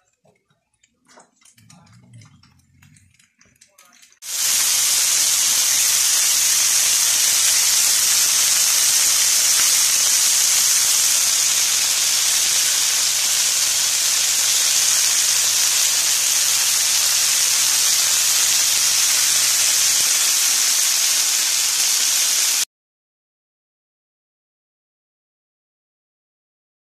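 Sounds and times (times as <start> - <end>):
rice sizzling in a frying pan: 4.2 - 22.7.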